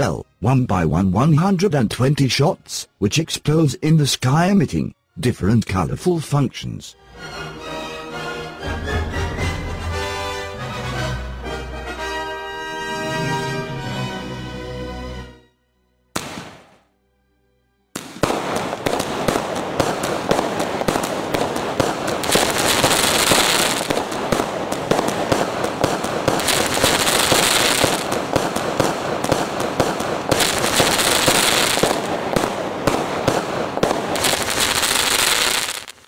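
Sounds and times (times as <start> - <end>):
fireworks shots and bursts: 16.2 - 16.9, 18.0 - 36.0
hissing crackle: 18.0 - 36.0.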